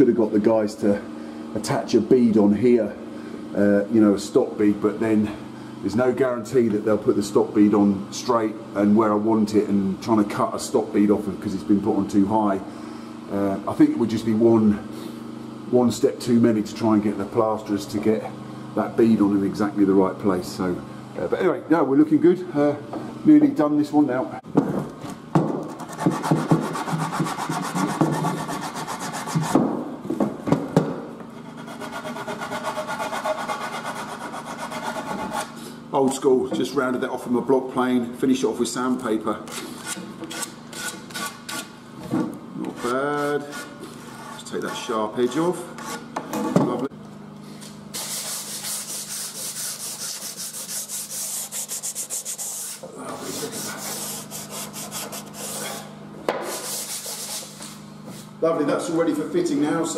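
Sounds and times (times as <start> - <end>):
sandpaper scraping wood: 25.7 - 29.6, 31.4 - 35.8, 47.9 - 58.3.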